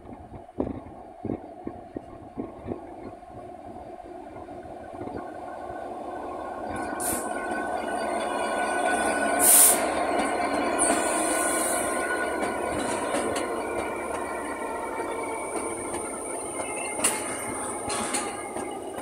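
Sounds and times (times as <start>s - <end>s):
diesel locomotive engine: 0.0s - 19.0s
wheels squealing on rails: 5.2s - 19.0s.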